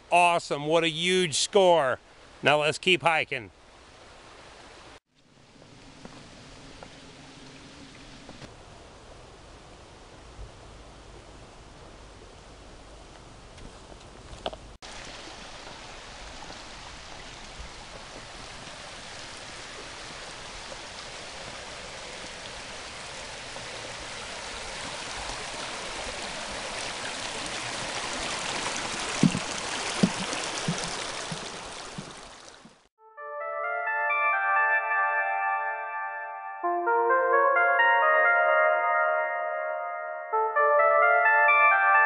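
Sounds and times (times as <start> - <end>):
creek rushing over rocks: 14.8 - 32.8.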